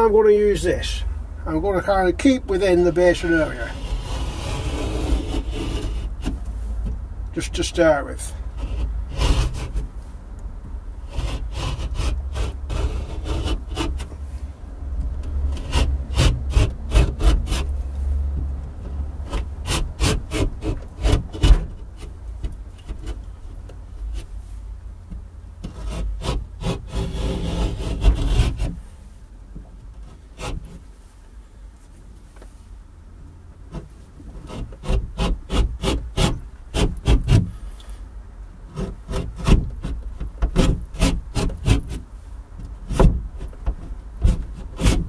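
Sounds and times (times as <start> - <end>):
knife scraping plasterboard: 3.5 - 6.4, 8.6 - 9.8, 11.0 - 14.1, 25.7 - 28.8.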